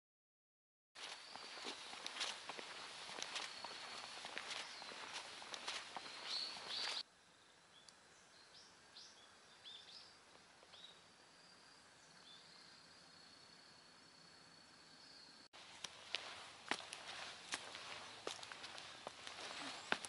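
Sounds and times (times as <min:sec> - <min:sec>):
bird chirps: 0:01.0 - 0:07.0, 0:07.7 - 0:15.5, 0:17.2 - 0:20.0
footsteps on asphalt: 0:01.0 - 0:07.0, 0:15.6 - 0:20.0.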